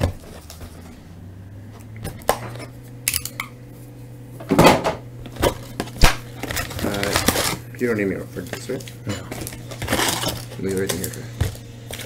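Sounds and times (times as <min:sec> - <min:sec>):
wrapping crinkling rustle: 0:05.6 - 0:12.0.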